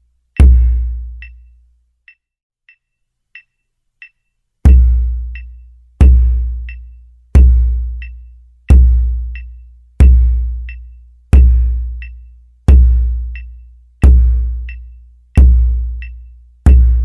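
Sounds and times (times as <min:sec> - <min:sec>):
metronome click: 0:00.4 - 0:05.7, 0:06.6 - 0:07.0, 0:07.9 - 0:08.4, 0:09.3 - 0:09.7, 0:12.0 - 0:12.4, 0:13.3 - 0:15.0.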